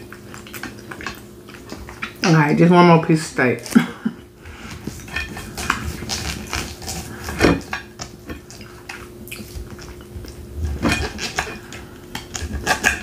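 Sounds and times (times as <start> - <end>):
cutlery scraping on plate: 4.7 - 8.4, 10.0 - 13.0.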